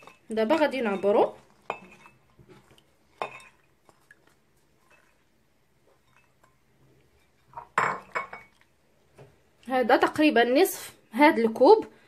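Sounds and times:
ceramic cup clink: 3.2 - 3.6, 6.0 - 6.5, 7.5 - 8.6.

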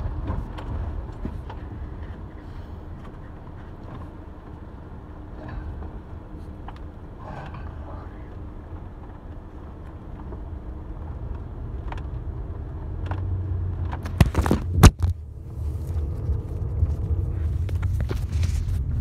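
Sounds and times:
wind rumble on microphone: 0.0 - 19.0.

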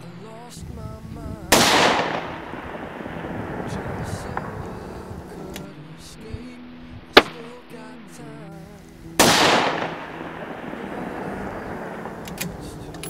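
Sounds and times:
rifle shots: 1.5 - 5.6, 7.2 - 7.5, 9.2 - 13.0
music: 2.2 - 13.0.

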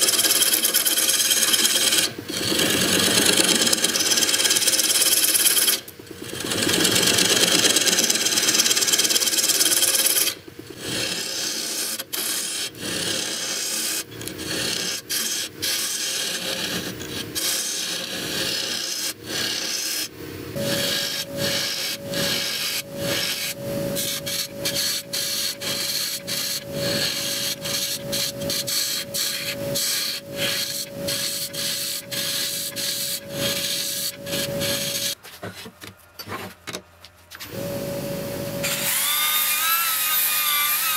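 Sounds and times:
lathe tool scraping wood: 0.0 - 35.2
steady high hum: 16.5 - 38.8.

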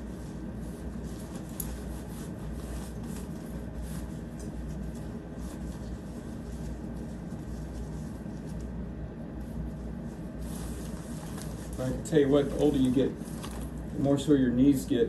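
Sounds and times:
steady low hum: 0.0 - 15.0
tent fabric rustling: 10.2 - 13.8.

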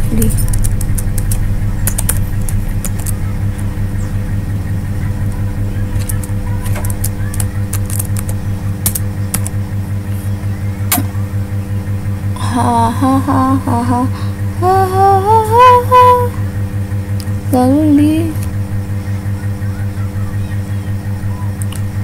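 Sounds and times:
steady low hum: 0.0 - 22.0
computer keyboard keys clicking: 0.4 - 3.7, 6.0 - 9.6.

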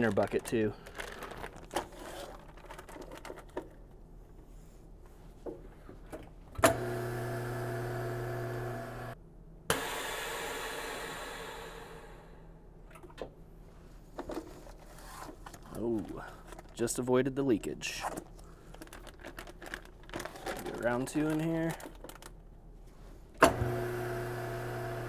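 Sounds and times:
vacuum pump humming: 6.6 - 11.6, 23.4 - 25.0
air hissing into chamber: 9.7 - 12.4.

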